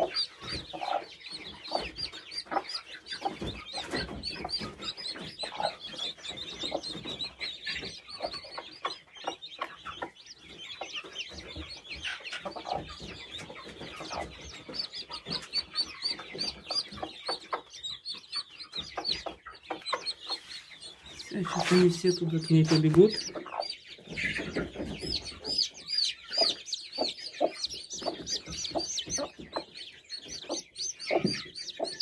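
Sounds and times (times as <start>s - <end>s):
chicks peeping: 0.0s - 32.0s
hen clucking: 0.0s - 32.0s.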